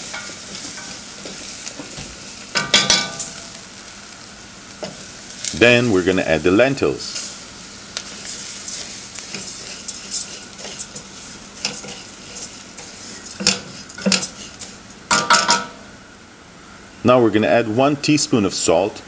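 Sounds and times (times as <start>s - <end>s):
lentils rustling and scraping in pot: 0.0s - 15.1s
light sizzle: 0.0s - 17.0s.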